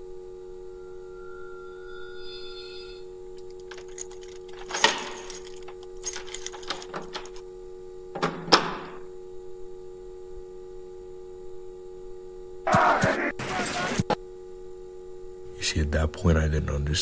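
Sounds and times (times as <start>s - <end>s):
droning hum: 0.0s - 17.0s
clinking rattling bursts: 3.4s - 7.4s.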